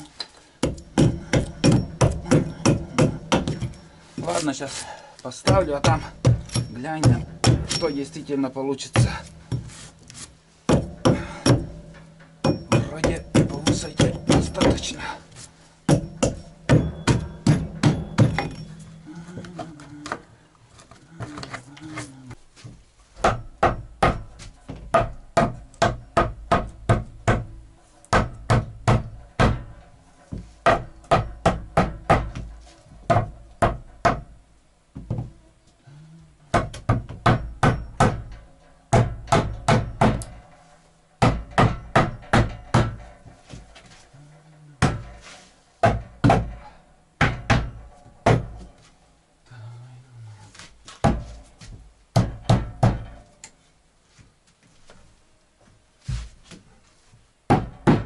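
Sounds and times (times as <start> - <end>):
hammer striking wood: 0.6 - 3.8, 5.4 - 8.0, 10.7 - 15.0, 15.9 - 18.8, 23.2 - 32.5, 33.1 - 34.3, 36.5 - 40.4, 41.2 - 43.1, 44.8 - 45.1, 45.8 - 48.7, 51.0 - 53.2, 57.5 - 58.0.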